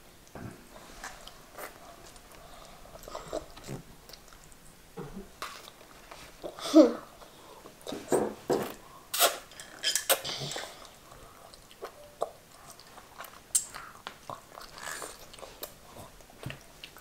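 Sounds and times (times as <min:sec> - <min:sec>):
chewing and mouth noises: 0:00.2 - 0:04.7, 0:09.1 - 0:17.0.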